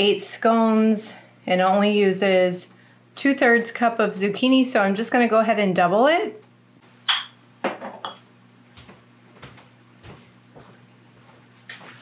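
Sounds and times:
faint steady hum: 0:00.0 - 0:12.0
soft footfalls: 0:08.7 - 0:12.0.

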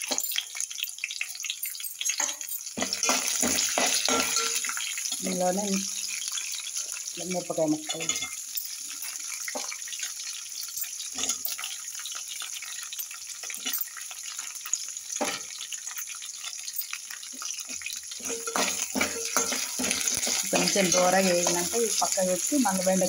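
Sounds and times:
metal spatula scraping a pan: 0:00.0 - 0:05.1, 0:07.8 - 0:14.5, 0:16.7 - 0:22.1
chillies sizzling in hot oil: 0:00.0 - 0:23.0.

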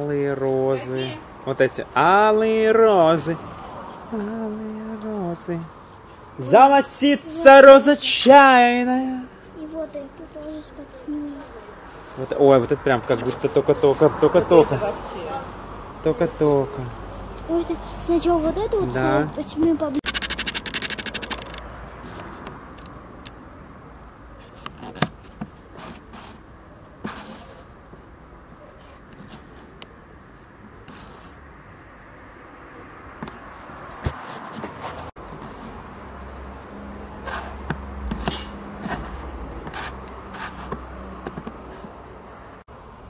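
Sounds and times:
rapid rattle: 0:20.0 - 0:21.6
sharp clicks: 0:20.0 - 0:21.7.

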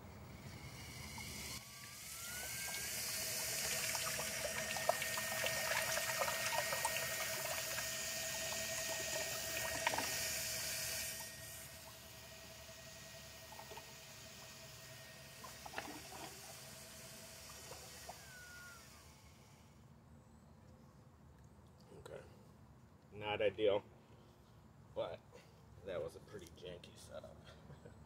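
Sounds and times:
propeller churning water: 0:00.0 - 0:19.2
electric motor whine: 0:00.0 - 0:19.8.

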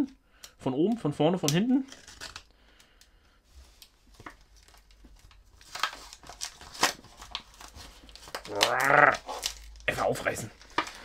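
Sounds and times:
plastic packet crinkling: 0:03.8 - 0:11.0.

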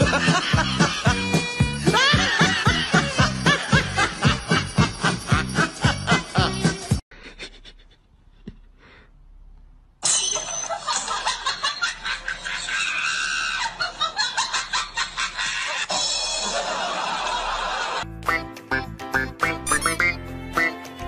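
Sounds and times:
person laughing loudly: 0:00.0 - 0:08.0.

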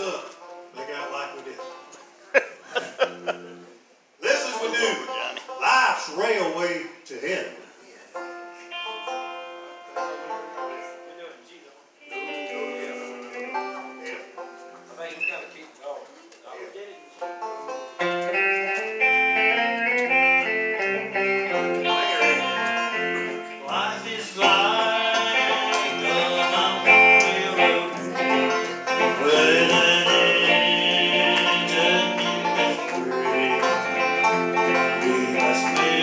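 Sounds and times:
banjo picking: 0:00.0 - 0:06.6, 0:08.1 - 0:11.3, 0:12.0 - 0:15.0, 0:16.6 - 0:36.0
electric guitar: 0:08.2 - 0:11.1, 0:12.0 - 0:14.6, 0:17.0 - 0:36.0.

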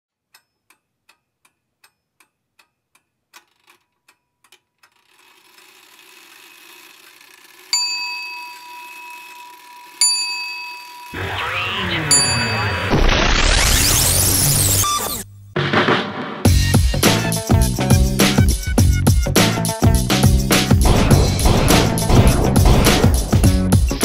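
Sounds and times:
clock ticking: 0:00.2 - 0:03.5.

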